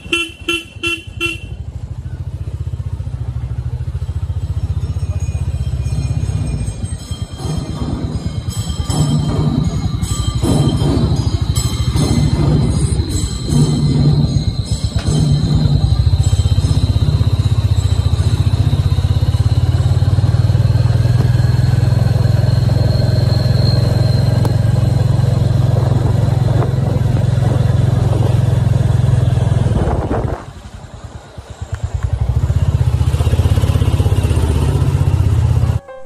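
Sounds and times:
motorcycle engine droning: 0:00.0 - 0:36.0.

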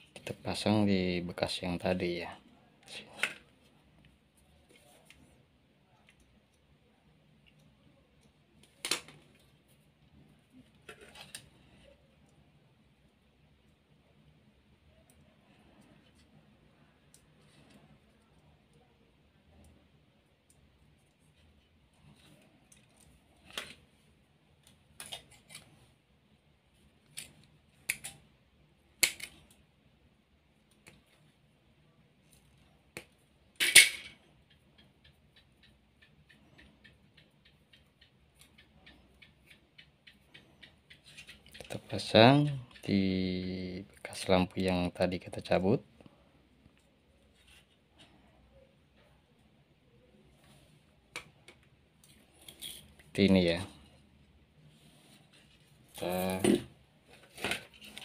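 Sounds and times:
handling of wires and parts: 0:08.2 - 0:12.4, 0:20.4 - 0:26.0, 0:54.9 - 0:58.0
wires clicking and rustling: 0:19.5 - 0:26.0, 0:26.7 - 0:29.7, 0:32.2 - 0:43.0, 0:55.0 - 0:58.0.

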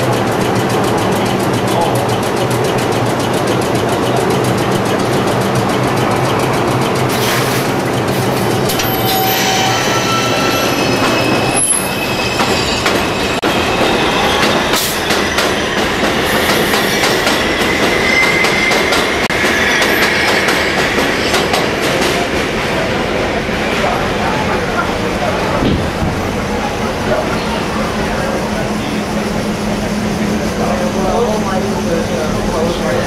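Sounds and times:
traction motors whining: 0:00.0 - 0:22.0
high wheel squeal: 0:05.2 - 0:21.4.

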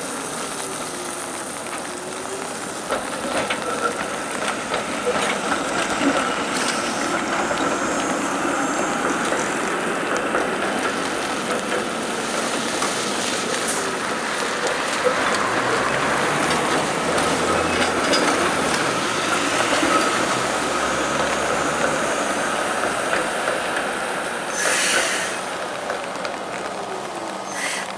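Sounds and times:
streetcar running on track: 0:00.0 - 0:27.9
wet hiss: 0:06.3 - 0:10.0, 0:24.5 - 0:25.6, 0:27.4 - 0:27.9.

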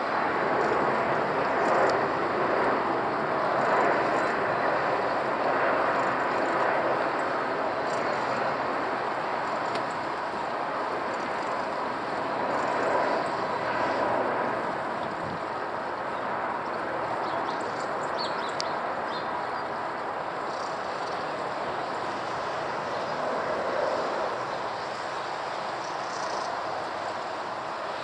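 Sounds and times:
jet engines roaring overhead: 0:00.0 - 0:28.0.

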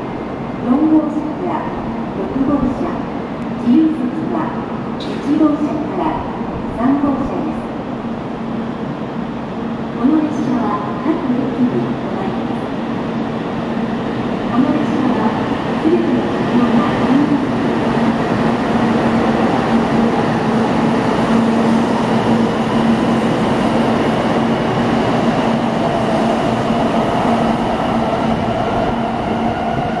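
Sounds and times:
train rushing rumble: 0:09.0 - 0:30.0.

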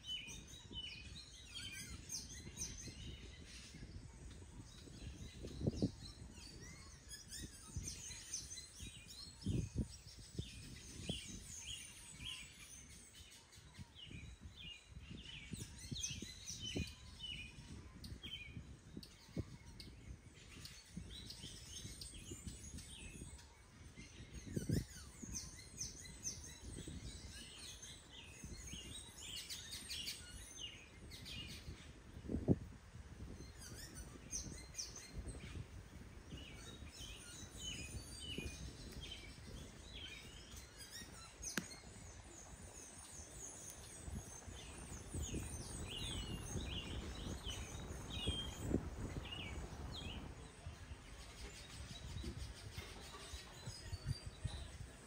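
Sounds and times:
small birds chirping: 0:00.0 - 0:55.0.

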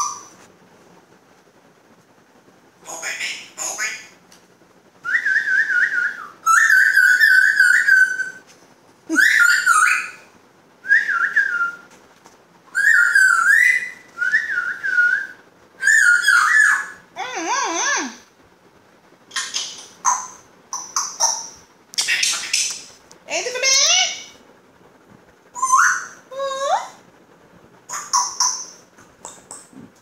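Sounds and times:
parrot whistling warbling phrases: 0:09.1 - 0:10.2, 0:25.6 - 0:27.0.

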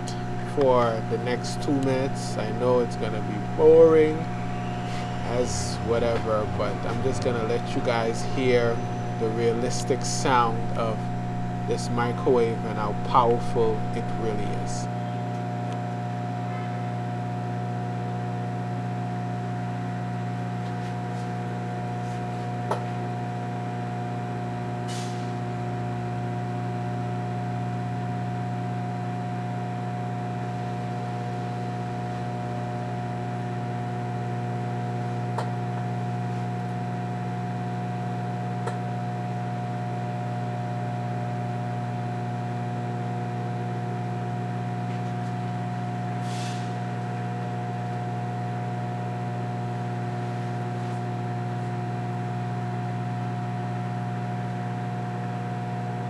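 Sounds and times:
microwave humming: 0:00.0 - 0:20.8, 0:21.4 - 0:56.0
brief hisses: 0:46.2 - 0:46.8.

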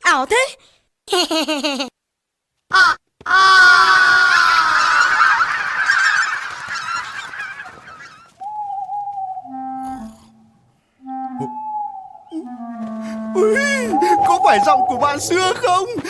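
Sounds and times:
flock of birds calling: 0:04.2 - 0:09.5, 0:13.8 - 0:15.9
held woodwind note: 0:08.4 - 0:15.3.

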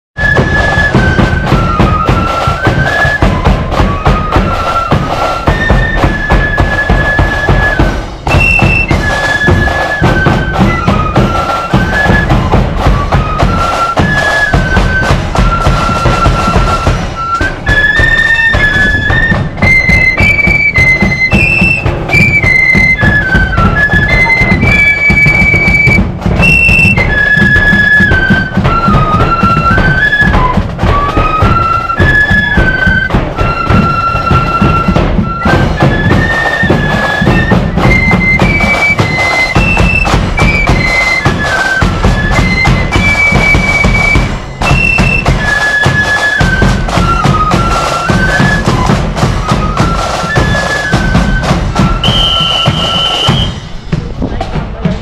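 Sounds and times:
flute band playing: 0:00.2 - 0:55.0
bass drum beats: 0:51.4 - 0:55.0.

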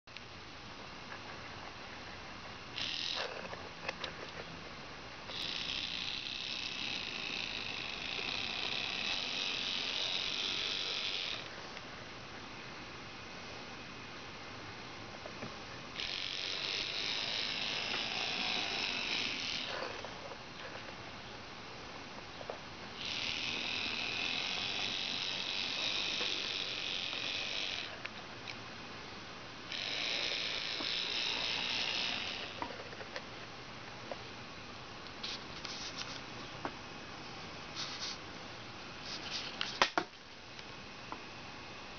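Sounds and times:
model train motor whine: 0:02.7 - 0:04.2, 0:05.3 - 0:11.6, 0:15.9 - 0:20.9, 0:23.0 - 0:28.1, 0:29.7 - 0:33.0.

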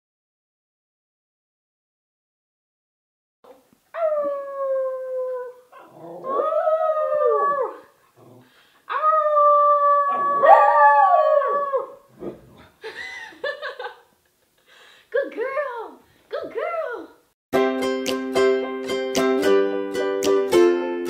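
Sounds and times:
dog howling: 0:04.0 - 0:07.9, 0:08.9 - 0:12.1.

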